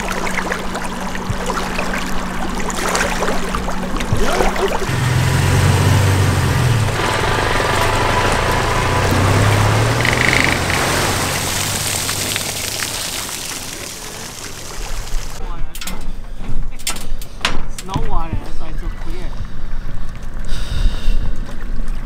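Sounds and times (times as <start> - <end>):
engine droning: 0.0 - 15.4.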